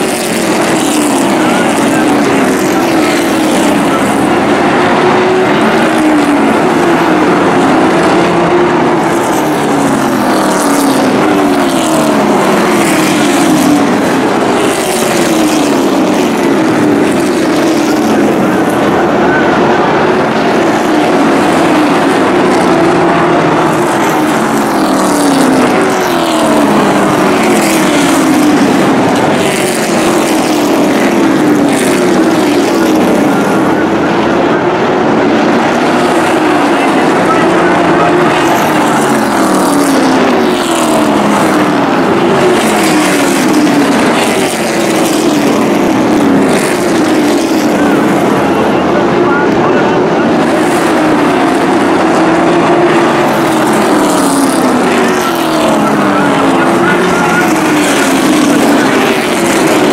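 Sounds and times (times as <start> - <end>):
racing truck engines passing: 0.0 - 59.9.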